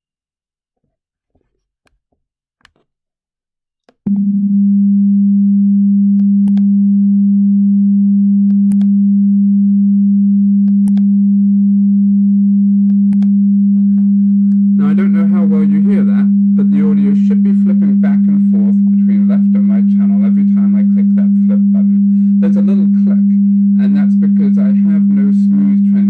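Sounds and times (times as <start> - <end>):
steady pure test tone: 8.5 - 26.0.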